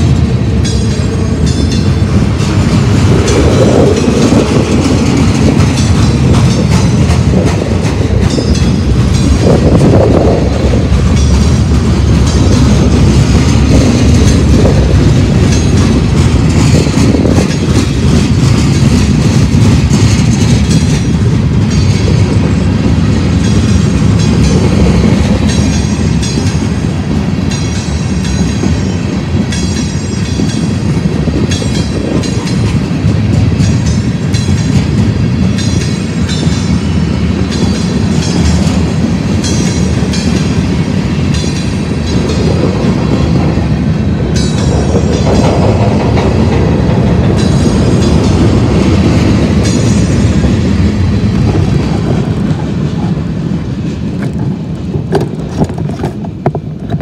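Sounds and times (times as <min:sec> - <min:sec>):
freight train wheels rumbling: 0:00.0 - 0:57.0
train wheels clattering: 0:00.0 - 0:57.0.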